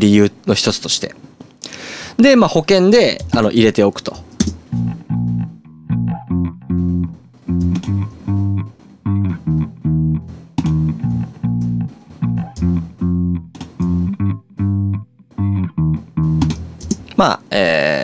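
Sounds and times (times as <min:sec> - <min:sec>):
electric bass playing plucked notes: 0:04.4 - 0:17.2.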